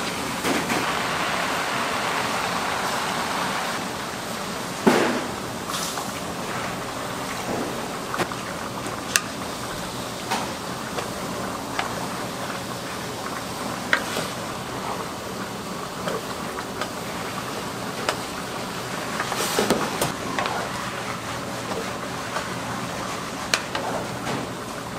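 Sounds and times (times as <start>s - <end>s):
food sizzling in a wok: 0.0s - 7.3s.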